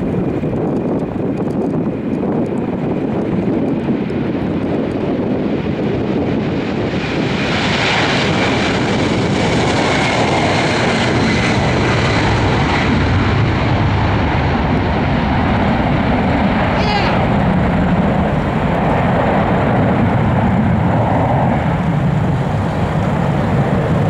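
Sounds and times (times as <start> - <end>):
jet engines roaring with whine: 0.0 - 24.0
low rumble: 0.0 - 24.0.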